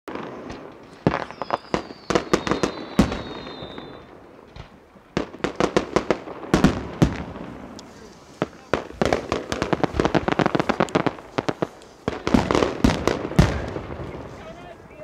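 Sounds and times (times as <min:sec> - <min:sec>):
fireworks bangs: 0:00.1 - 0:15.0
high firework whistle: 0:01.1 - 0:04.1.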